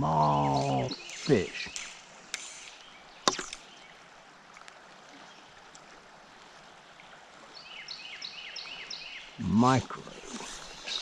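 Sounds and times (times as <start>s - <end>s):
bird chirping: 0.0s - 4.0s, 10.2s - 11.0s
shallow river flowing: 0.0s - 11.0s.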